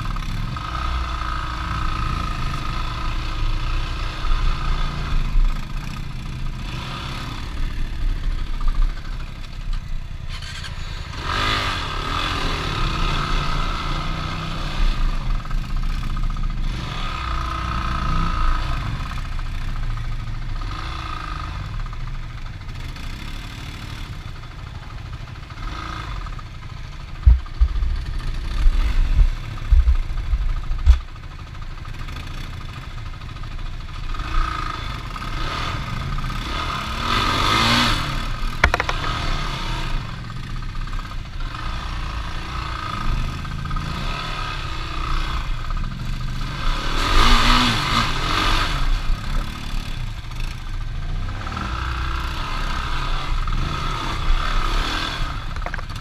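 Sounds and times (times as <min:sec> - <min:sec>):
off-road vehicle engine revving: 0:00.0 - 0:24.6, 0:25.2 - 0:31.2, 0:31.8 - 0:56.0
heavy low thumps: 0:27.2 - 0:31.1.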